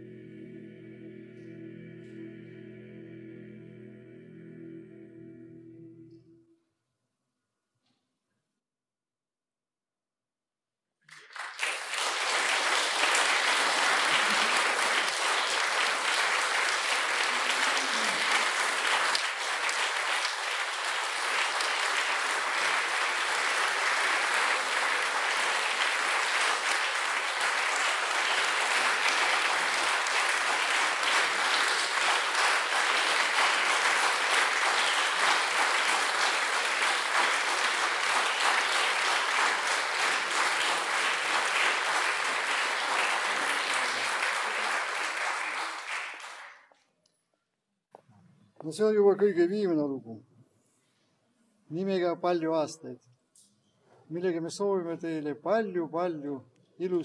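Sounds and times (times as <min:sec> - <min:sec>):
audience applauding: 0:11.1 - 0:46.7.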